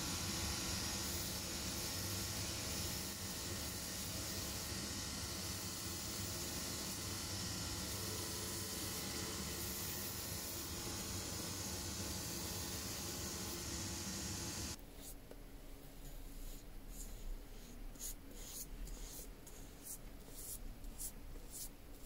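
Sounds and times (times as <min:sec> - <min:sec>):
sanding belt hiss: 0:00.0 - 0:14.8.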